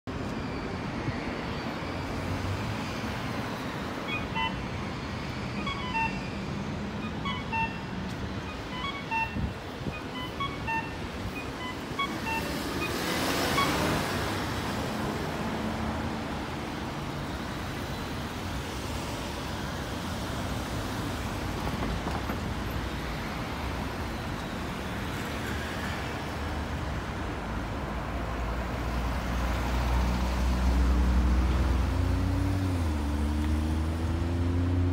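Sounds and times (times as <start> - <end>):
city traffic: 0.0 - 34.9
pedestrian crossing beeps: 0.1 - 27.3.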